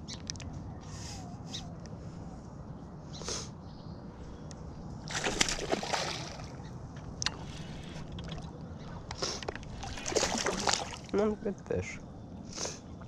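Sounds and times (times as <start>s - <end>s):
fish splashing in water: 5.1s - 6.6s, 7.3s - 11.1s.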